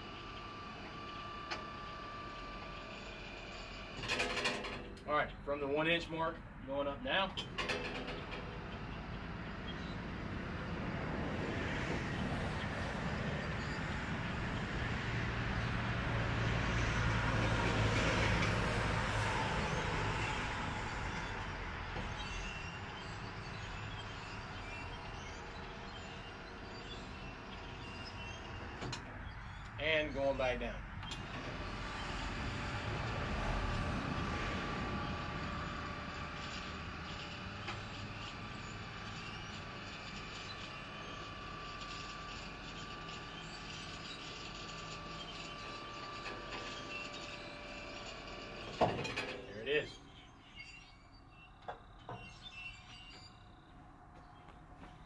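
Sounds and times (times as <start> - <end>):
sawmill mechanical drone: 0.0 - 55.0.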